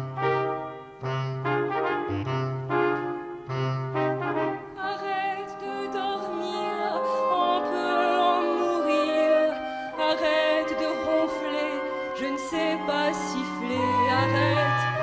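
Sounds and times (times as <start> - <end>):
big band brass chords: 0.0 - 4.9.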